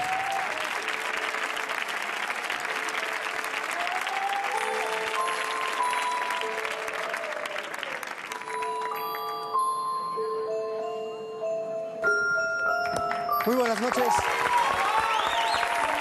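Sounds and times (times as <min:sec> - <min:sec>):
audience applauding: 0:00.0 - 0:09.8, 0:12.8 - 0:16.0
entrance music with held notes: 0:00.0 - 0:16.0.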